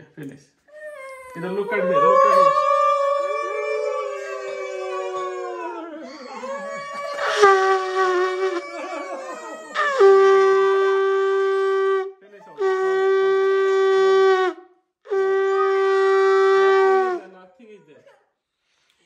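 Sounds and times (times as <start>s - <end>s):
conch shell blasts: 7.2s - 9.0s, 9.8s - 17.3s.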